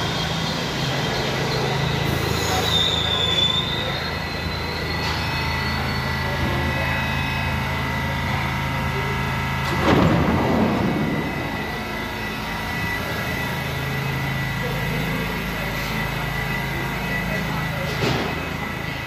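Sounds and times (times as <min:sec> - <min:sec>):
steady high whine: 0:00.0 - 0:19.0
subway car low hum: 0:00.0 - 0:19.0
loud noisy burst: 0:09.7 - 0:14.4.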